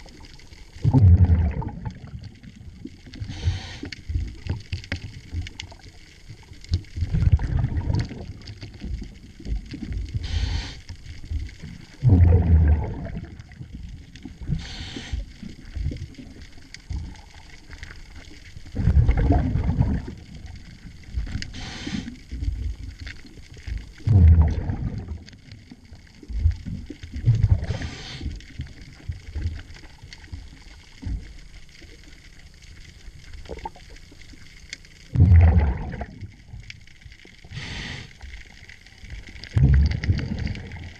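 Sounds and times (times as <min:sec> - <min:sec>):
exhaust bubbles rumbling: 0:00.0 - 0:31.6, 0:35.0 - 0:40.9
regulator inhale hiss: 0:03.2 - 0:04.2, 0:10.1 - 0:11.0, 0:14.5 - 0:15.5, 0:21.4 - 0:22.3, 0:27.6 - 0:28.6, 0:37.4 - 0:38.6.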